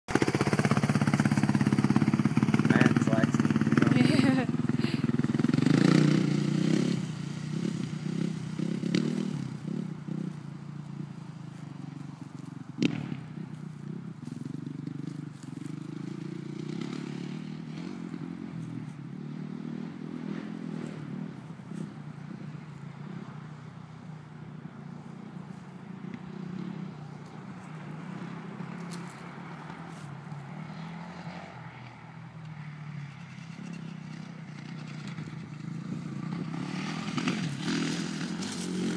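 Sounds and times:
motocross engine revving: 0.1s - 10.4s, 33.4s - 38.9s.

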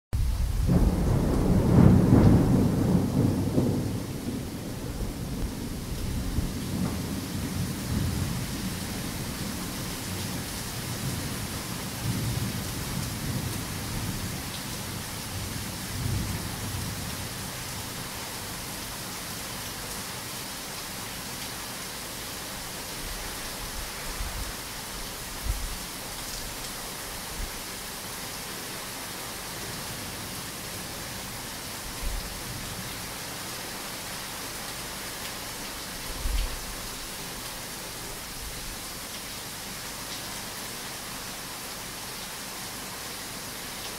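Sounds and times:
heavy rain: 0.1s - 43.9s
thunder rumbling: 0.2s - 9.6s.

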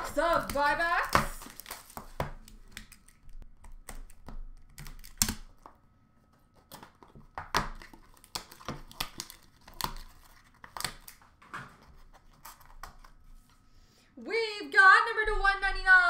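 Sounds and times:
wrapping crinkling and tearing: 0.0s - 5.7s, 6.3s - 13.6s
sharp clicks and snaps: 2.4s - 5.5s.

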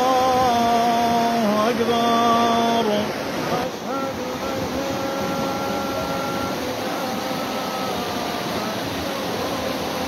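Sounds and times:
floodwater rushing: 0.0s - 10.0s
heavy rain: 0.0s - 10.0s
man singing call to prayer: 0.0s - 10.0s.

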